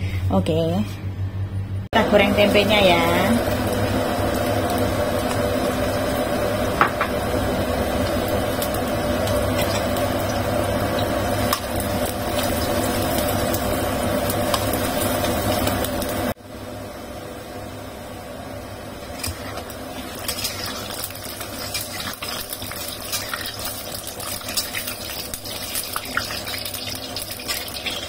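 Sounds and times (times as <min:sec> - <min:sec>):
deep-frying sizzle: 0:02.1 - 0:28.0
oil popping and crackling: 0:03.4 - 0:16.4, 0:19.1 - 0:28.0.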